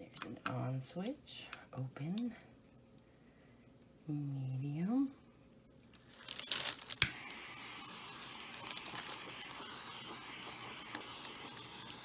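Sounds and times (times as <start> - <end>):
torch flame hissing: 6.2 - 12.0
gas hissing: 6.4 - 12.0
torch ignition click: 6.5 - 8.9.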